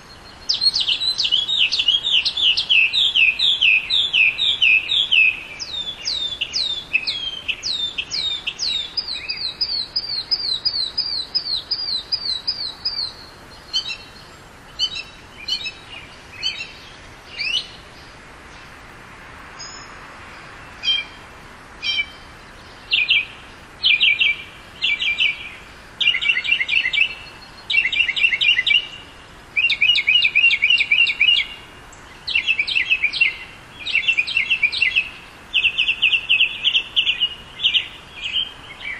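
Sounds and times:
mockingbird singing: 0.0s - 17.8s, 20.8s - 21.2s, 21.8s - 38.9s.

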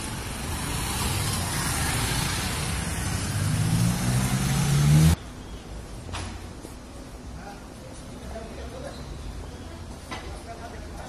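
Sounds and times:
vehicle engine passing by: 0.0s - 5.2s.

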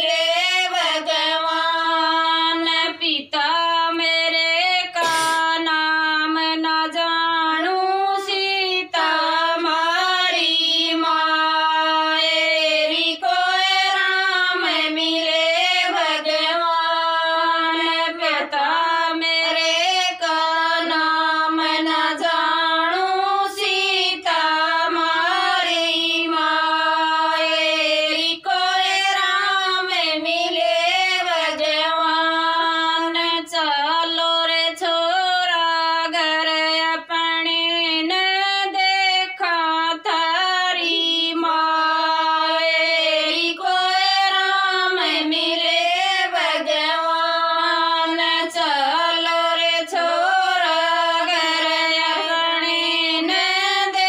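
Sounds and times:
women singing unaccompanied: 0.0s - 54.0s.

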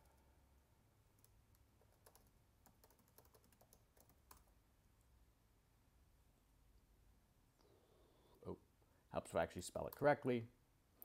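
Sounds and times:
faint keyboard typing: 1.0s - 4.6s, 9.8s - 10.1s.

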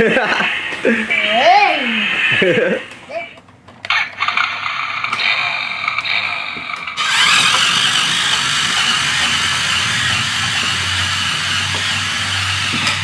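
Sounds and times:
toy car motor whirring: 3.9s - 13.0s.

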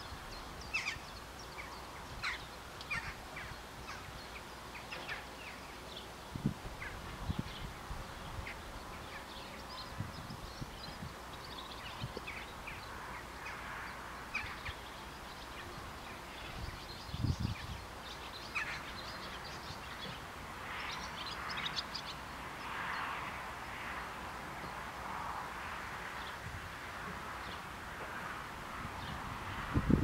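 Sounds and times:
birds chirping: 0.0s - 23.1s.

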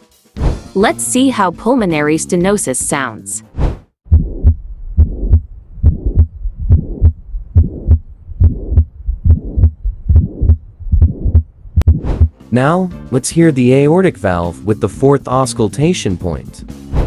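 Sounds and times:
heart murmur: 4.1s - 12.3s
heartbeat sounds: 4.1s - 12.4s.

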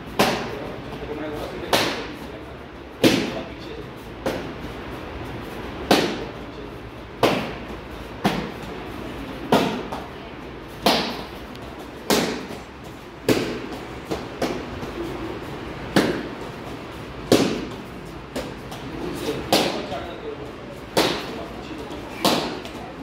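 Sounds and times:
kicks slapping a kicking paddle: 0.2s - 0.6s, 3.0s - 3.5s, 5.8s - 6.4s, 7.2s - 8.8s, 9.4s - 10.1s, 10.8s - 15.0s, 15.9s - 19.9s, 22.1s - 22.8s.

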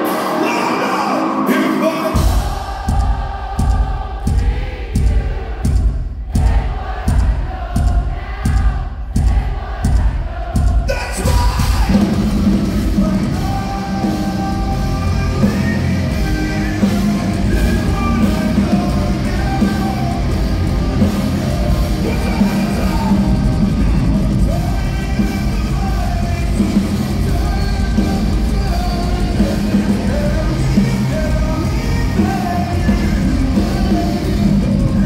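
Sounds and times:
live heavy metal band: 0.0s - 5.8s, 6.4s - 35.0s
person singing: 10.9s - 35.0s.

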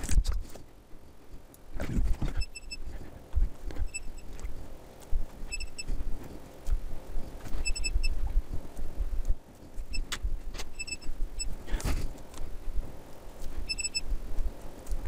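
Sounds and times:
short high beeps: 5.5s - 5.9s, 7.6s - 8.2s, 10.8s - 11.5s, 13.6s - 14.0s.

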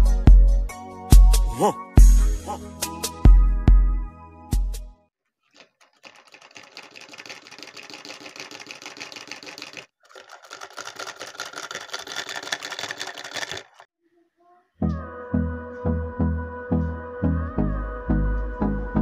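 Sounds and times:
small engine mechanical clatter: 5.4s - 13.9s.

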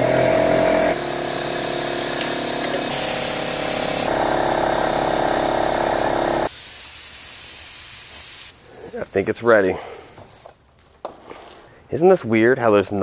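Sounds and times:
air compressor pulsing buzz: 0.0s - 8.9s
air hissing: 2.8s - 10.4s.

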